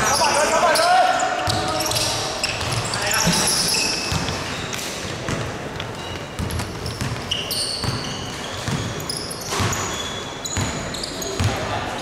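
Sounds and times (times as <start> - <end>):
sneakers squeaking on floor: 0.0 - 12.0
basketball bouncing on hardwood: 6.4 - 8.9.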